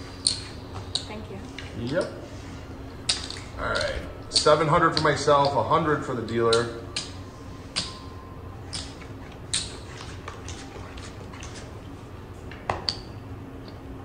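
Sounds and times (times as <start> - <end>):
low steady background hum: 0.0 - 14.0
casino chips clicking: 8.7 - 11.6.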